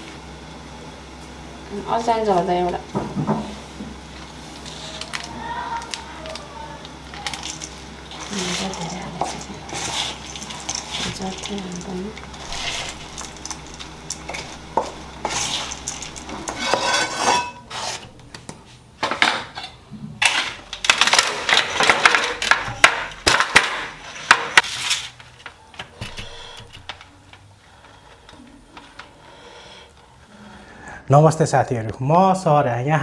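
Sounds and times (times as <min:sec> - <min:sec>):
spoon scraping steel bowl: 0:08.1 - 0:11.6, 0:12.2 - 0:18.2.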